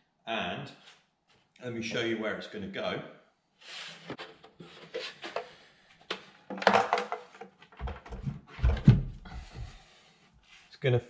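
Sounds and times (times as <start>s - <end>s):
wooden shelf knocking on panels: 6.5s - 9.8s.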